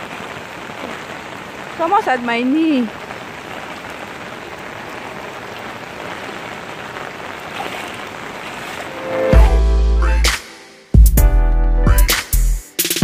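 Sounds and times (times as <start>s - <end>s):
rain falling on water: 0.0s - 9.6s
floodwater swishing around legs: 6.0s - 9.3s
music with heavy bass: 9.2s - 13.0s.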